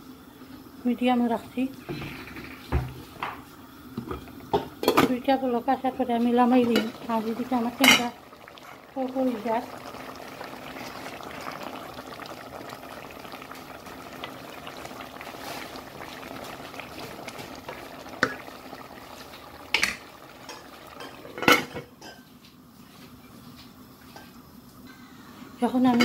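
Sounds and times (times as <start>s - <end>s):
curry bubbling in a pot: 0.0s - 22.4s
pot lid clanking: 19.7s - 22.2s.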